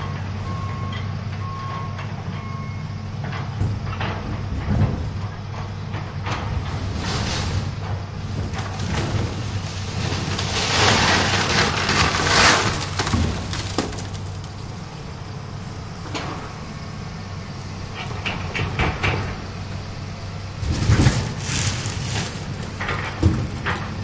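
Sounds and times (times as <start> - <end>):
excavator engine droning: 0.0 - 24.0
knocks and clatters: 3.2 - 14.7, 17.9 - 19.4, 20.6 - 24.0.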